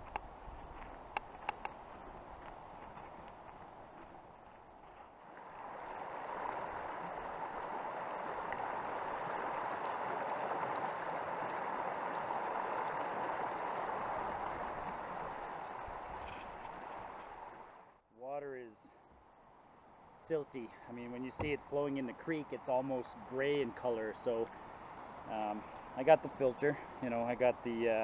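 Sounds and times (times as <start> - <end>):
creek water rushing: 0.8 - 18.0.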